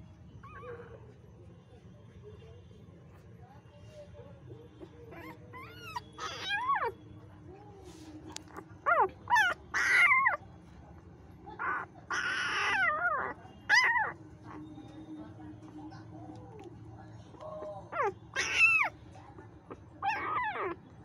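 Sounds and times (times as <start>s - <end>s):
puppies squealing: 0.4s - 1.0s, 4.8s - 7.0s, 8.5s - 10.4s, 11.5s - 15.0s, 17.9s - 19.0s, 19.7s - 20.9s.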